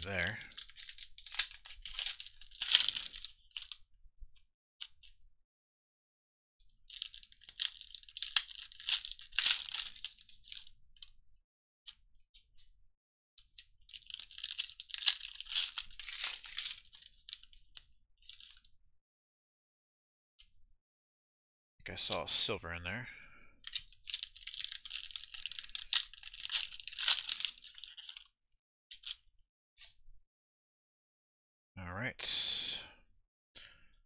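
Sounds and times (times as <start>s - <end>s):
foil wrappers tearing and crinkling: 0.1s - 3.3s, 7.0s - 10.6s, 14.0s - 17.4s, 23.7s - 28.2s
small clicks: 23.6s - 28.3s.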